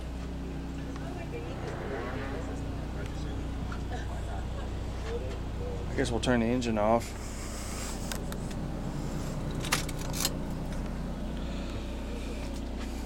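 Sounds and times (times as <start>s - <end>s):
generator humming: 0.0s - 13.0s
ignition key clicks: 9.5s - 10.9s.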